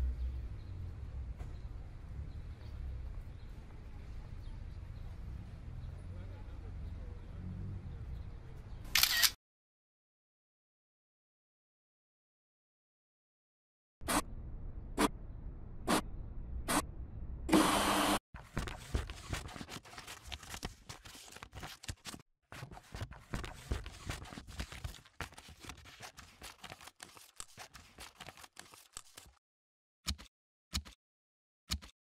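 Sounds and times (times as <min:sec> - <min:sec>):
scissors cutting paper: 0:18.4 - 0:29.4.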